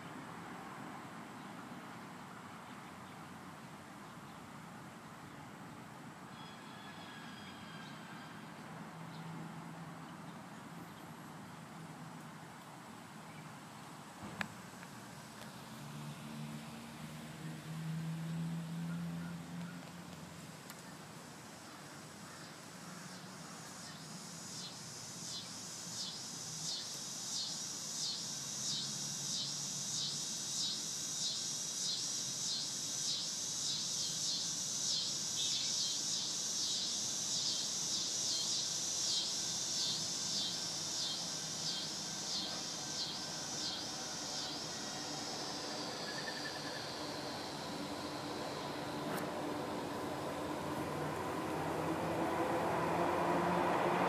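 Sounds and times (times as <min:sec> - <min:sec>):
cicada pulsing buzz: 0:13.8 - 0:54.0.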